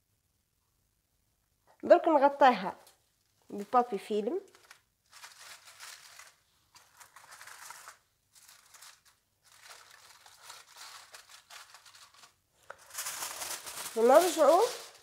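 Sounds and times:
cling film and foil crinkling: 3.5s - 15.0s.

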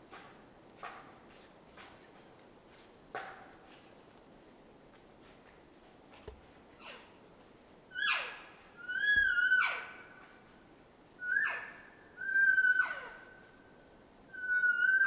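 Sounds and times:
elk whistling squeals: 11.2s - 13.2s, 14.3s - 15.0s.

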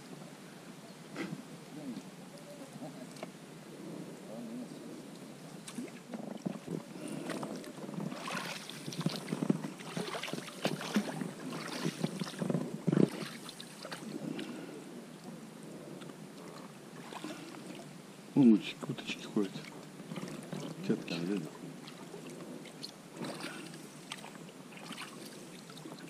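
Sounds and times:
boat splashing and knocking: 5.6s - 14.5s, 18.6s - 26.0s.

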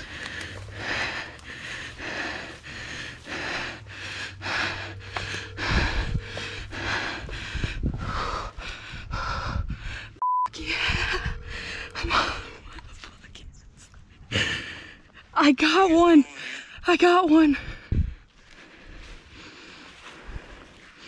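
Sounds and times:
rustling through dry grass: 0.0s - 8.6s, 18.3s - 21.0s
person breathing hard: 0.0s - 12.9s, 14.2s - 15.3s, 17.6s - 21.0s.

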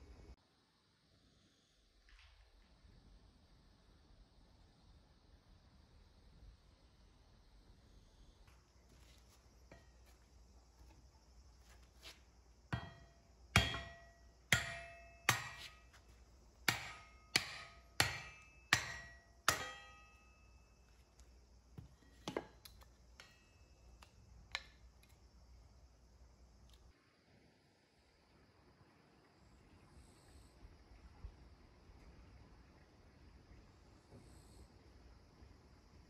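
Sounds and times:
hammer striking metal splitter: 12.8s - 16.0s, 16.6s - 20.6s.

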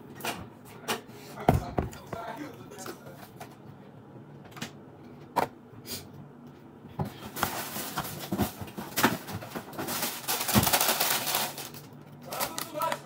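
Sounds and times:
plastic bag crinkling: 7.3s - 13.0s.

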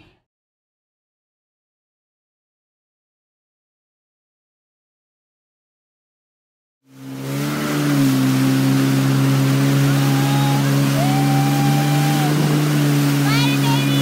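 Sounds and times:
jet ski engine running: 6.9s - 14.0s
rushing wind and spray: 6.9s - 14.0s.

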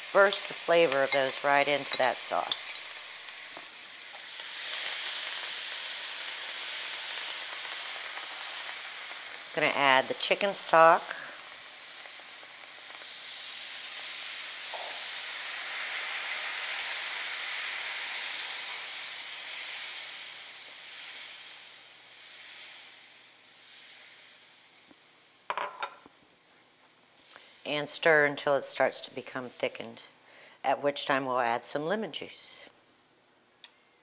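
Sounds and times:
liquid sizzling in hot pan: 0.0s - 26.2s.

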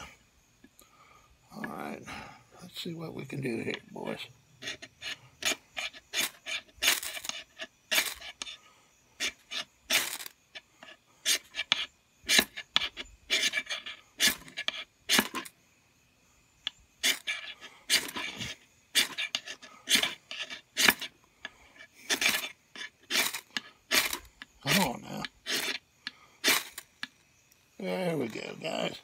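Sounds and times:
striker rasping on ferrocerium rod: 4.6s - 8.6s, 9.2s - 15.5s, 17.0s - 27.2s.

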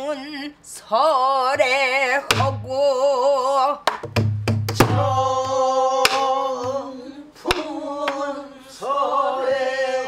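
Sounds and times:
woman singing: 0.0s - 3.9s
barrel drum thumps: 3.9s - 6.8s.

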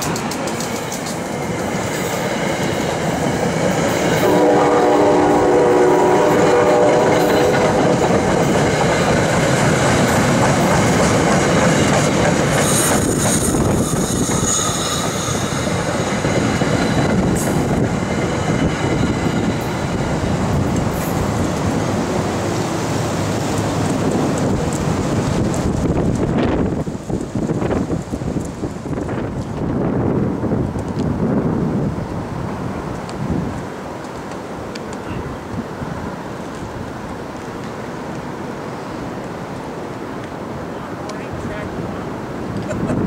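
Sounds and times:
train wheels clicking over rail joints: 0.0s - 4.3s, 6.2s - 22.0s
train horn multi-tone blast: 4.2s - 7.8s
high squeal: 12.6s - 15.8s.

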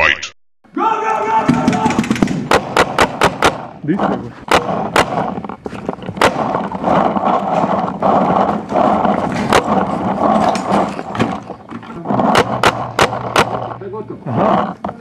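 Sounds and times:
paintball marker shots: 1.5s - 8.7s, 12.2s - 13.8s
steady rustling hiss: 1.9s - 15.0s.

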